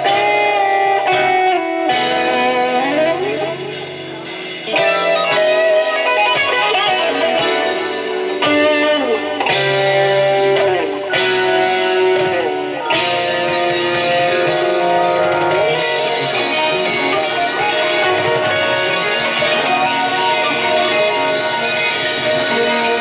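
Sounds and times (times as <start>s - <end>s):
electric guitar with bending notes: 0.0s - 23.0s.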